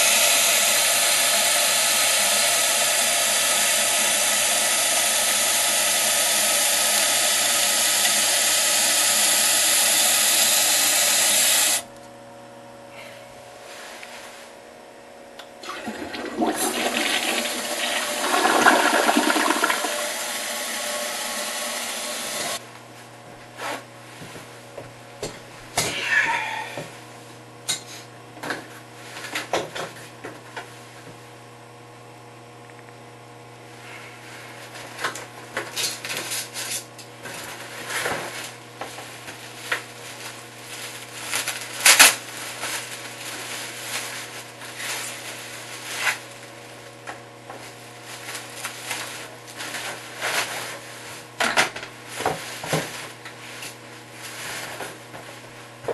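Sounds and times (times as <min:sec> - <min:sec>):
toilet flushing: 0:00.0 - 0:11.8, 0:15.6 - 0:22.6
cardboard box and plastic wrap handled: 0:39.0 - 0:46.5.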